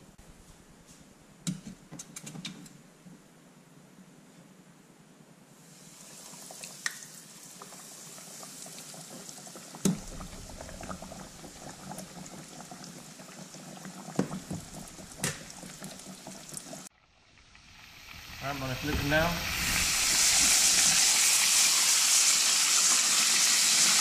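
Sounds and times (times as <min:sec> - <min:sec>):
oil sizzling and bubbling: 0:05.6 - 0:24.0.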